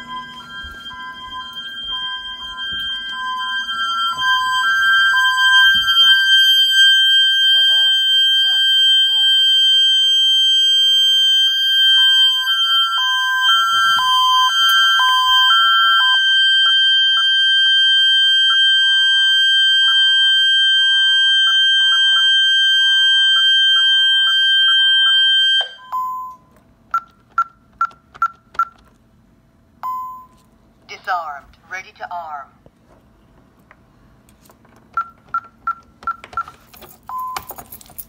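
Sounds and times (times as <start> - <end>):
pulsed alarm beep: 0.0 - 26.4
alarm steady high tone: 0.0 - 27.6.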